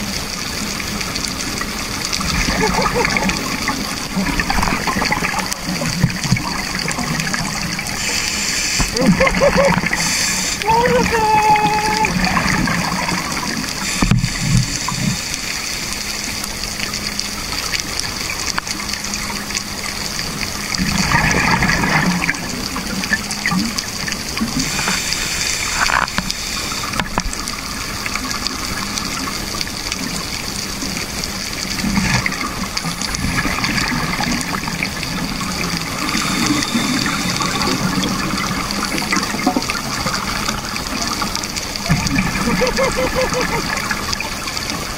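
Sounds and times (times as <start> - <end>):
bubbling underwater: 0.0 - 10.4, 31.6 - 44.9
diver breathing hiss: 7.9 - 10.7, 13.8 - 16.0, 24.5 - 27.1, 35.9 - 38.0.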